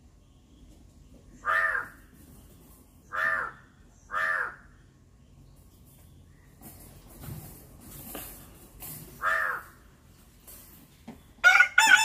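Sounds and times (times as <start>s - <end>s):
crow cawing: 1.4s - 2.0s, 3.1s - 4.7s, 9.2s - 9.8s.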